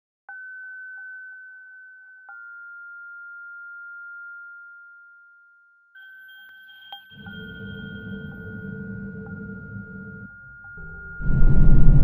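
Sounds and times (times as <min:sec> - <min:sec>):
fainter lower tone: 0:07.2 - 0:12.0
high electronic sine tone: 0:07.2 - 0:12.0.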